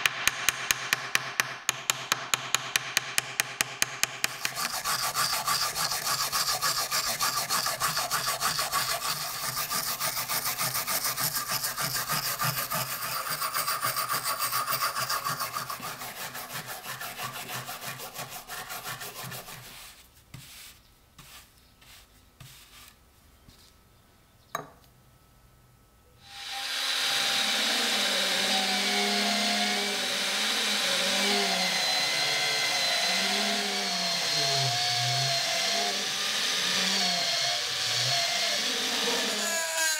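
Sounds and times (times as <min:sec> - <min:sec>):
hand tool scraping rust: 0:03.8 - 0:19.9
brushing: 0:04.2 - 0:23.8
electric drill whining: 0:26.2 - 0:39.9.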